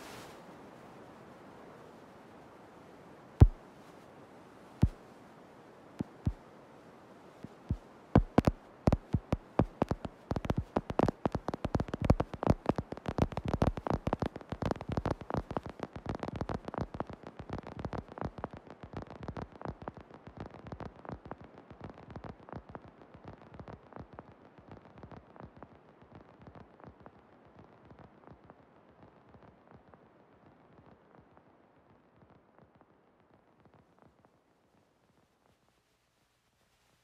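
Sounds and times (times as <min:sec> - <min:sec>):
electronic music clicks and crackles: 0:08.2 - 0:21.4.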